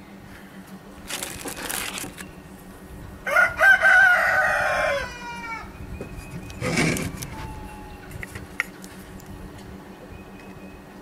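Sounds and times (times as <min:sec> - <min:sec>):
rustling: 0:01.0 - 0:02.3
rooster crowing: 0:03.2 - 0:05.8.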